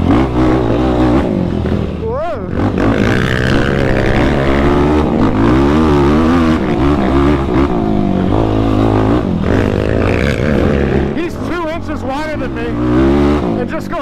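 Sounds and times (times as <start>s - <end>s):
quad engine revving: 0.0s - 14.0s.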